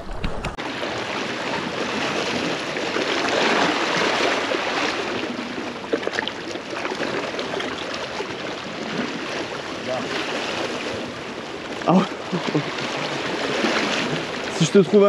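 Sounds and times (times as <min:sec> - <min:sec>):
sea water washing against rocks: 0:00.0 - 0:15.0
small splashes and drips: 0:05.8 - 0:09.1.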